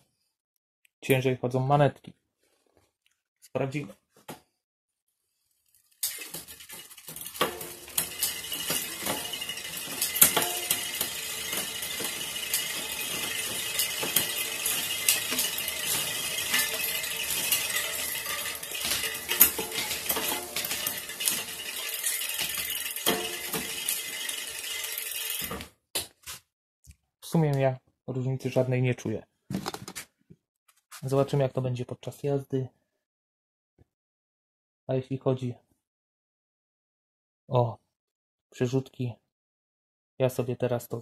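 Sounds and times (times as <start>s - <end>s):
bicycle chain clinking: 5.7s - 25.7s.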